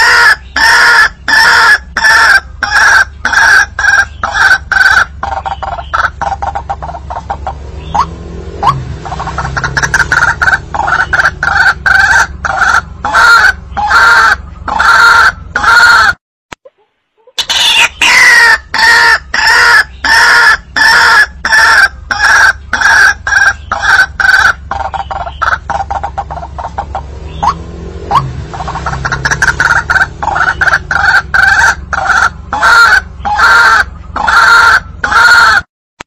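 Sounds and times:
waterhen croaking call: 0.0s - 35.7s.

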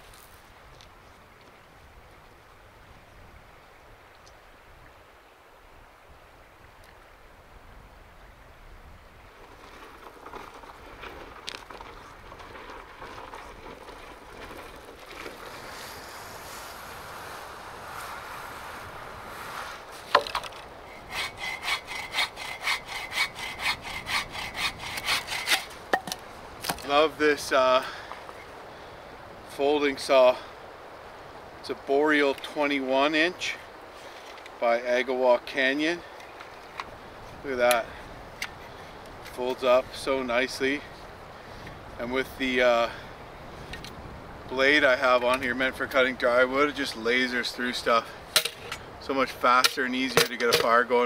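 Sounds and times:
folding saw cutting wood: 19.3s - 26.0s.

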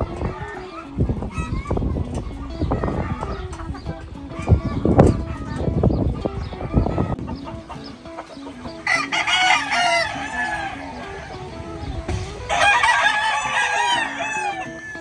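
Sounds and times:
rooster crowing: 8.8s - 11.4s, 12.5s - 15.0s.

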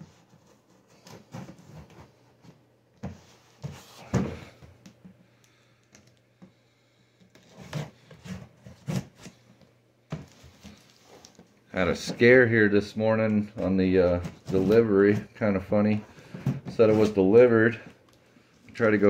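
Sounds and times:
hands handling cardboard box: 13.4s - 18.1s.

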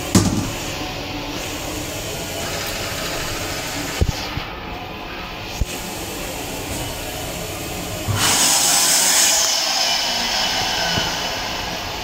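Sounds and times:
railcar running noise: 6.3s - 12.0s
electric hand dryer blowing air: 8.1s - 12.0s.

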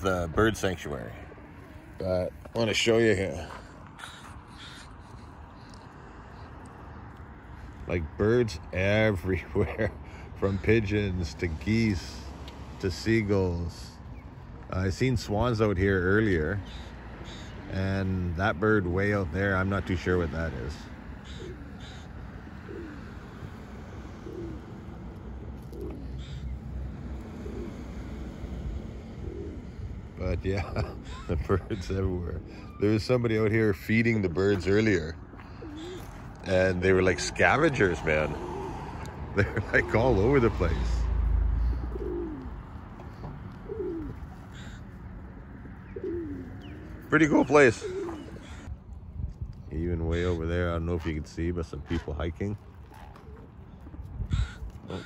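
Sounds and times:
pigeons cooing: 0.0s - 12.2s, 12.9s - 48.9s, 51.8s - 55.0s.

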